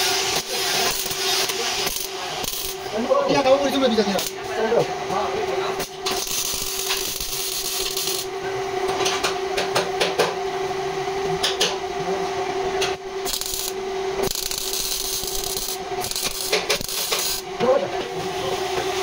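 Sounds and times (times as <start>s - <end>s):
welder arc crackling: 0.0s - 8.4s, 12.8s - 18.2s
steady hum: 0.0s - 19.0s.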